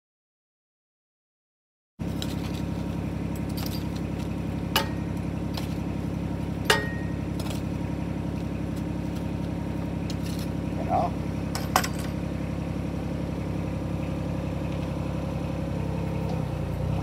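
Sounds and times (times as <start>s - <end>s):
diesel engine running: 2.0s - 17.0s
sharp metal clanks: 4.7s - 5.8s, 6.6s - 7.6s, 11.5s - 12.2s.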